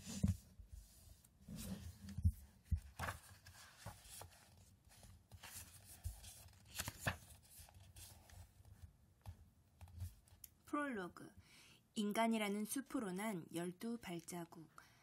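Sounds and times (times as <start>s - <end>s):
book pages rustling and turning: 0.0s - 10.4s
soft knocks of book handling: 0.0s - 10.4s.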